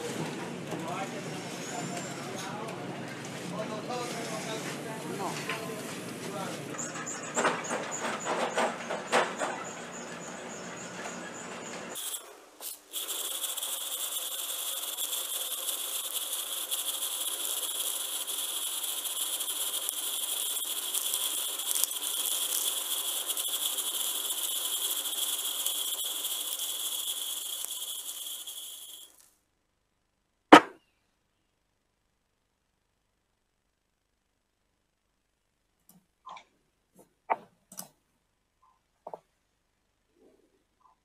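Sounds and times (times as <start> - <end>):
metallic granules pouring: 11.9 - 29.3.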